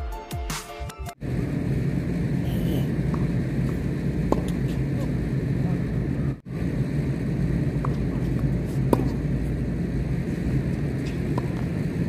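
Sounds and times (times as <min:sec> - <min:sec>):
steady low rumble: 0:01.1 - 0:12.0
tennis racket hitting ball: 0:04.3 - 0:04.8, 0:07.8 - 0:09.3, 0:11.0 - 0:11.8.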